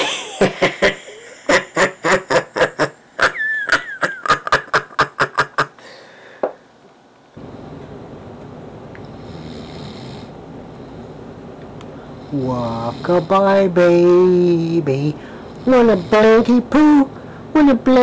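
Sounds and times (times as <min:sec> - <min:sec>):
man laughing loudly: 0:00.0 - 0:05.8
low room hiss: 0:00.0 - 0:18.0.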